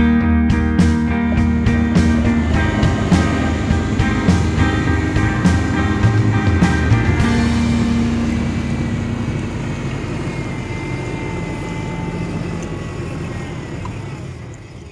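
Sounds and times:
suv engine driving on sand: 0:00.0 - 0:14.9.

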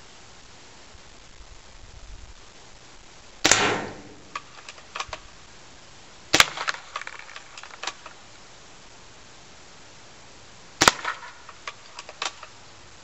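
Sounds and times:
airsoft gun shots: 0:03.4 - 0:04.5, 0:06.3 - 0:06.8, 0:10.8 - 0:11.3
light clicks and rattles: 0:11.4 - 0:12.6.

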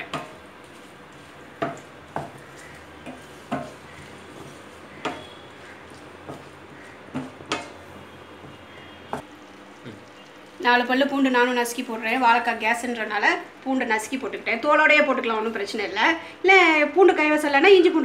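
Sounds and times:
wooden spatula scraping pan: 0:00.0 - 0:09.2.

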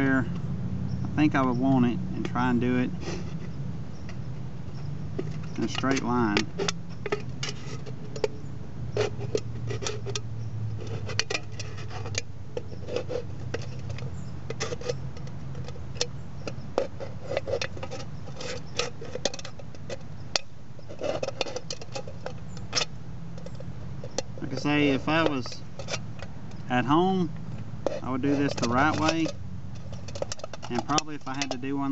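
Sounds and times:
knife cutting aluminium can: 0:05.2 - 0:08.3, 0:09.0 - 0:10.2, 0:10.8 - 0:26.0, 0:27.8 - 0:31.9.

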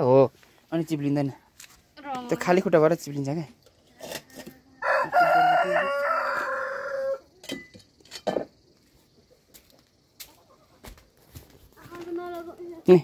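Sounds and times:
rooster crowing: 0:04.8 - 0:07.3.

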